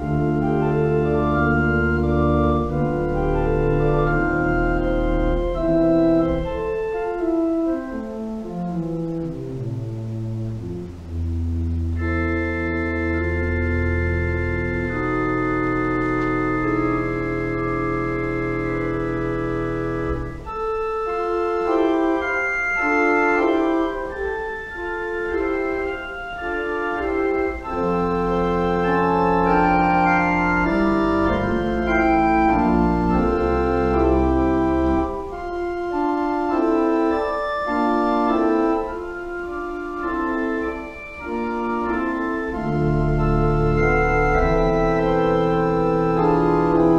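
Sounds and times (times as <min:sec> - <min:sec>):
church pipe organ playing: 0:00.0 - 0:46.9.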